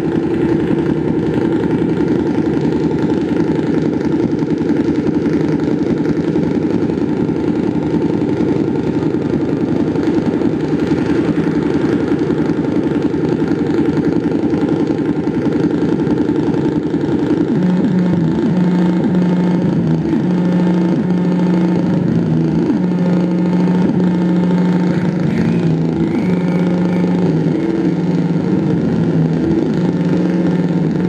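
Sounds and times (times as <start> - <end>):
loud dense low drone: 0.0 - 31.0
steady low tone with pitch sweeps: 24.8 - 30.0.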